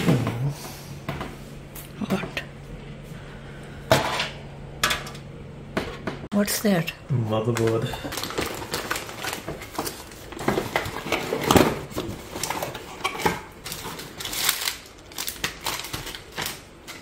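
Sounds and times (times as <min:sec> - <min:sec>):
plastic bag crinkling: 0:07.5 - 0:17.0.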